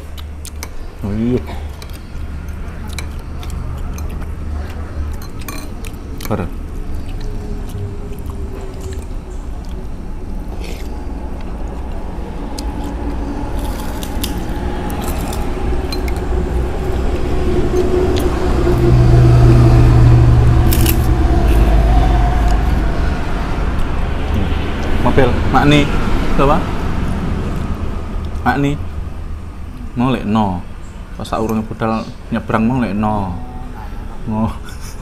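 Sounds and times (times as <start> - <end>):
vehicle engine rumble: 0.0 - 35.0
spoons clinking against bowls: 5.1 - 6.4.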